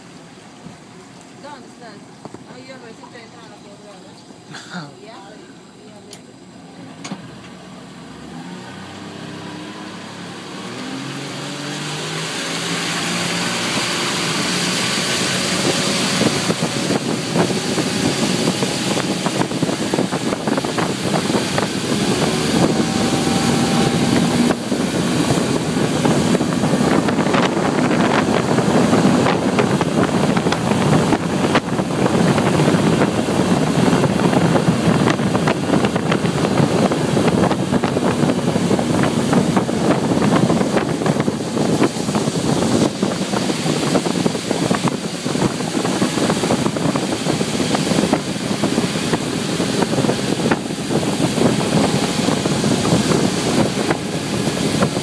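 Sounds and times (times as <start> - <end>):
motorboat engine running: 0.0 - 55.0
rushing water: 8.2 - 55.0
rushing wind: 8.3 - 55.0.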